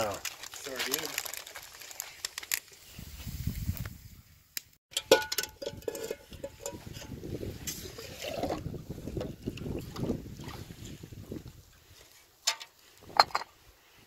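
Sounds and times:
water gurgling into metal pot: 5.6s - 10.9s.

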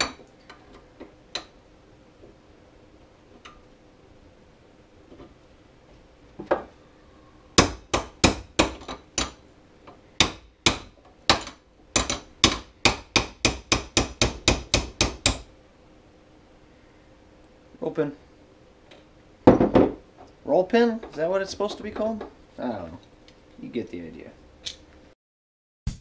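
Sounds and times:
hammer striking metal punch: 10.2s - 15.4s.

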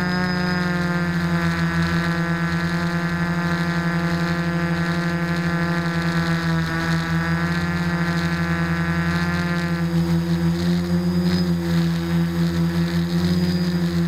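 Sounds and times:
quadcopter propellers humming: 0.0s - 14.0s.

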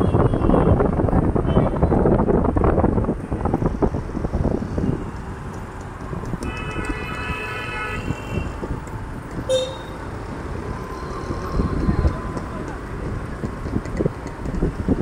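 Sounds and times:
street traffic: 0.0s - 15.0s
wind rumble on microphone: 0.0s - 15.0s
vehicle horn honking: 6.4s - 8.6s, 9.5s - 10.1s.

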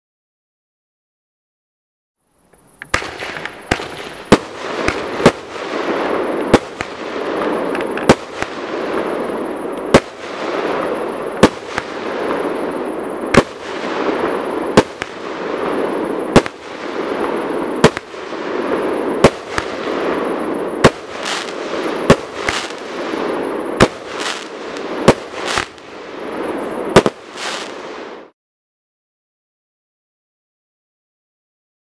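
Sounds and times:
firework crackling: 2.6s - 28.3s
firework launch and burst reports: 2.9s - 28.3s.

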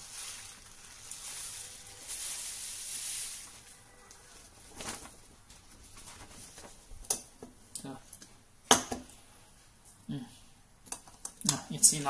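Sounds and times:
paper rustling: 0.0s - 7.0s.

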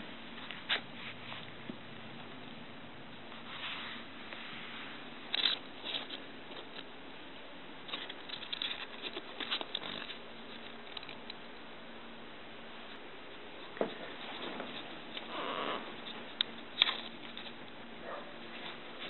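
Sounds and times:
faint steady hum: 0.0s - 19.0s
puppy paws scrabbling on carpet: 13.6s - 17.7s.

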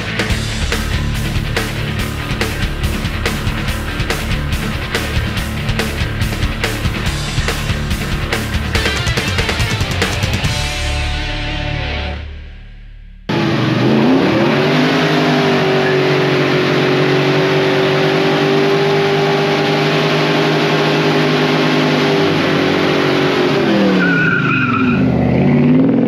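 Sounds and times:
car engine revving high: 0.0s - 12.6s, 13.2s - 26.0s
tyres squealing: 23.6s - 25.7s.

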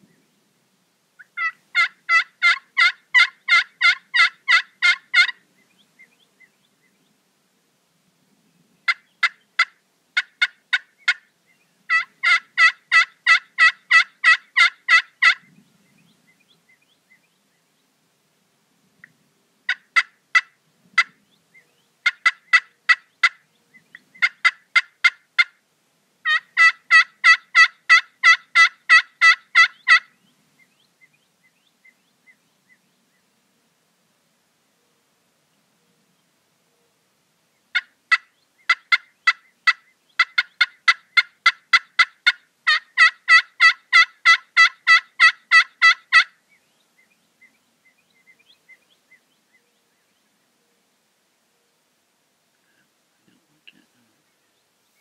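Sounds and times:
turkey yelping: 1.2s - 5.4s, 11.9s - 15.4s, 22.0s - 23.4s, 24.2s - 25.6s, 26.2s - 30.1s, 37.7s - 46.4s.

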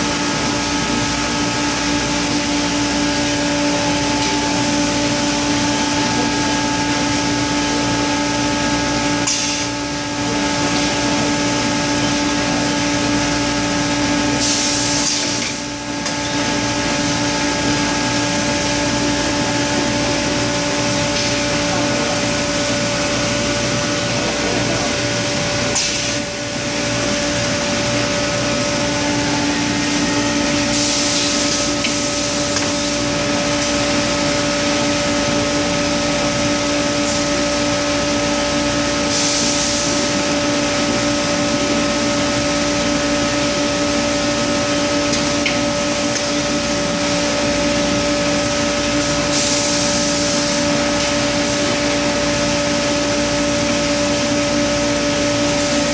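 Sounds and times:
machine hum: 0.0s - 55.9s.

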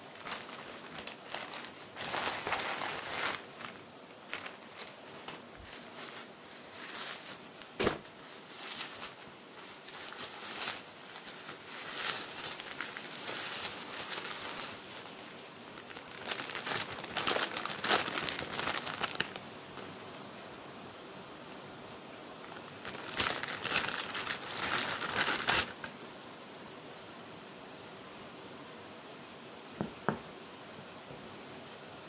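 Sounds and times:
bubble wrap and plastic crinkling: 0.0s - 20.2s, 22.4s - 26.0s.

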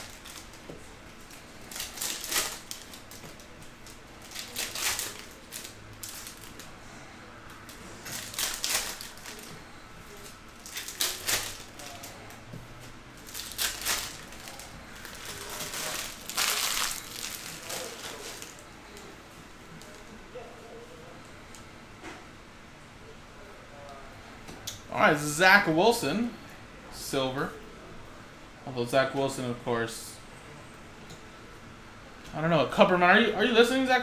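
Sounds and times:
wrappers torn and crinkled: 0.0s - 6.7s, 7.5s - 12.4s, 13.2s - 19.0s.

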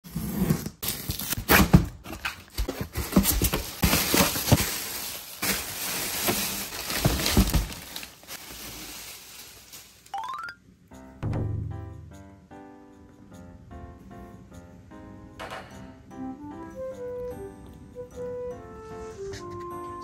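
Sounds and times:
plastic packing crinkling: 0.8s - 10.2s.

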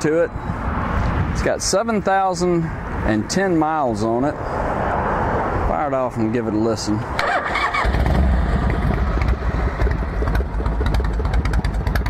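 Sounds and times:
motorcycle engine idling: 7.2s - 12.0s.

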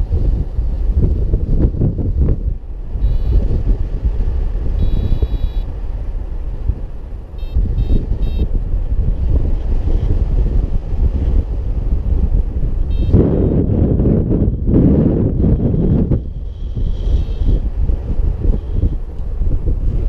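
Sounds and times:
wind on microphone: 0.0s - 20.0s
variometer beeping: 3.0s - 3.6s, 4.8s - 5.7s, 7.4s - 8.5s, 12.8s - 13.6s.

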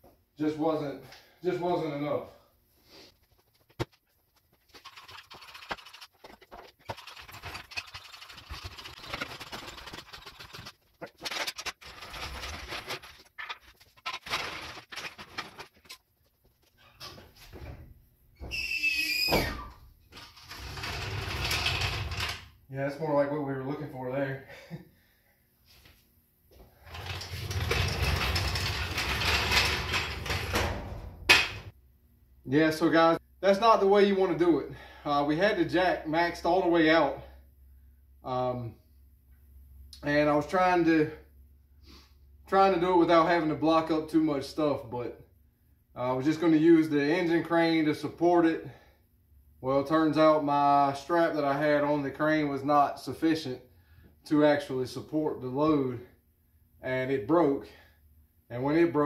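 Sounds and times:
rustling and shuffling: 2.7s - 18.5s, 25.6s - 31.7s
floor jack rolling on concrete: 20.1s - 22.5s, 26.8s - 31.7s.

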